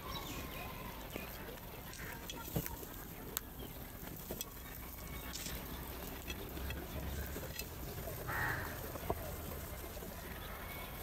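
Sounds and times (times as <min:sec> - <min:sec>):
beaks pecking clay bowls: 0:00.0 - 0:11.0
crow cawing: 0:08.3 - 0:08.8.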